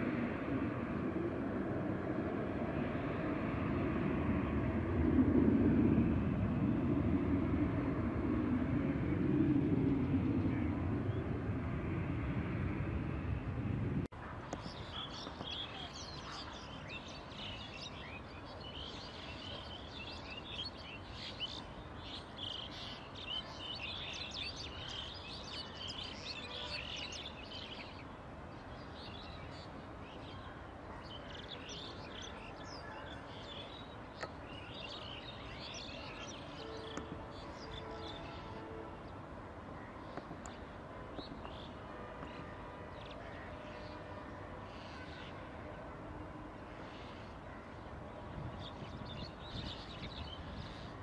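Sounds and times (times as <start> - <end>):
jet engine overhead: 0.0 - 51.0
small birds chirping: 14.4 - 39.2.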